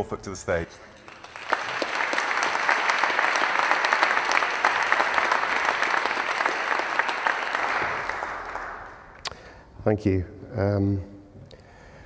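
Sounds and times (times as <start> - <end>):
audience applauding: 0.8 - 9.2.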